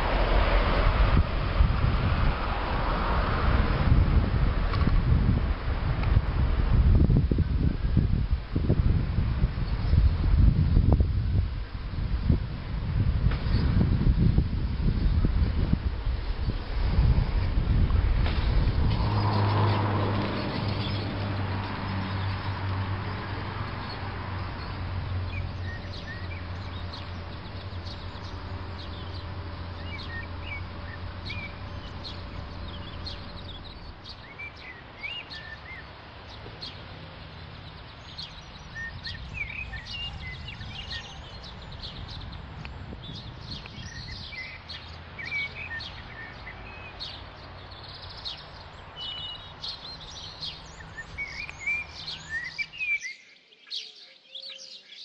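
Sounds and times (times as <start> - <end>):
outdoor background noise: 0.0 - 55.0
birds chirping and singing: 13.3 - 55.0
low steady hum: 20.1 - 47.4.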